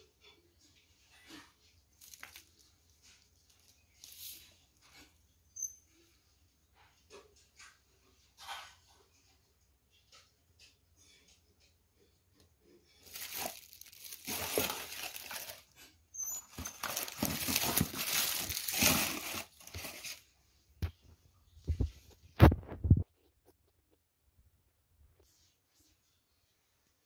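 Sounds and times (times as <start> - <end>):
paper crumpling and rustling: 1.3 - 5.1, 12.9 - 20.3.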